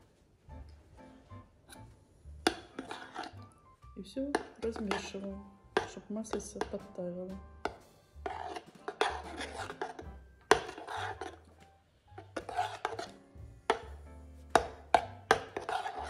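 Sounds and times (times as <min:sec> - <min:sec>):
metal spoon scraping pot: 0:02.4 - 0:03.6, 0:04.3 - 0:06.8, 0:08.2 - 0:13.9, 0:14.5 - 0:16.0
spoon clinking on metal pot: 0:04.3 - 0:06.9, 0:07.6 - 0:11.4, 0:12.2 - 0:13.9, 0:14.6 - 0:16.0.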